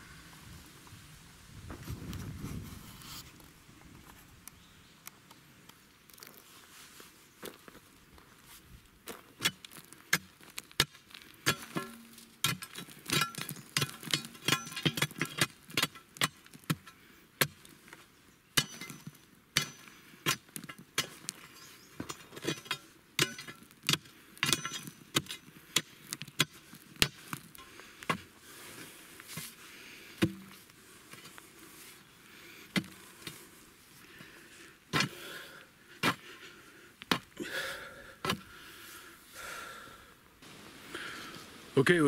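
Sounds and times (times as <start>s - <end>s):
digging bar striking stony ground: 9.3s - 28.3s, 30.2s - 31.4s, 32.7s - 33.4s, 34.9s - 35.2s, 36.0s - 36.4s, 37.0s - 37.4s, 38.2s - 38.5s.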